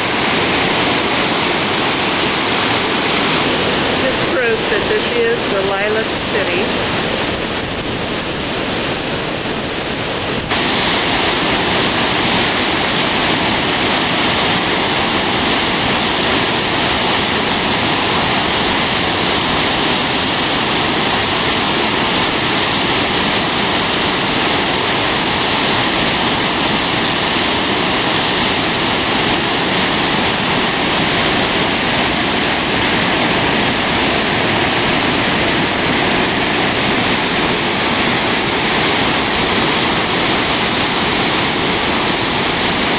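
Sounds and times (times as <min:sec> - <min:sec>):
whitewater rushing over falls: 0:00.0 - 0:42.9.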